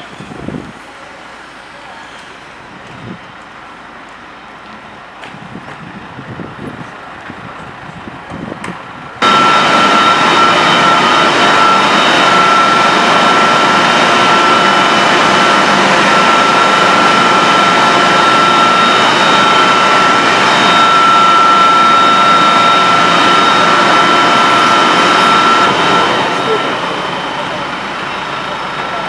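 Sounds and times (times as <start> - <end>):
machinery roar: 0.0 - 29.0
high-pitched machine whine: 9.2 - 29.0.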